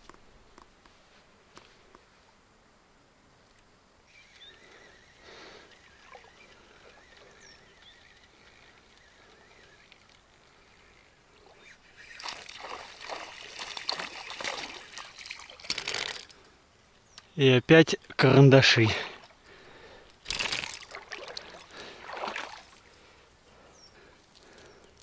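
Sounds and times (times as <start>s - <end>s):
water splashing and sloshing: 11.3s - 16.5s, 18.9s - 23.2s.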